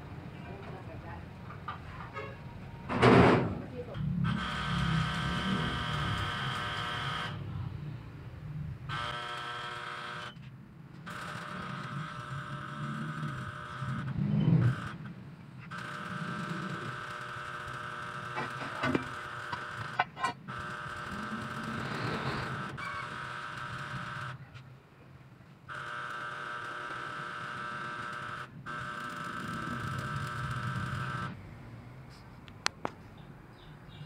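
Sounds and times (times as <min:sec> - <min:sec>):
mechanical hum: 0:00.0 - 0:34.0.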